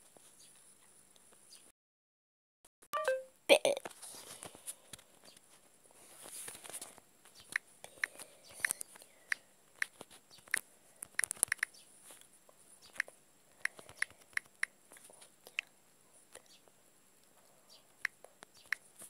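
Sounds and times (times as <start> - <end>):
typing taps on smartphone keyboard: 7.5 - 11.8.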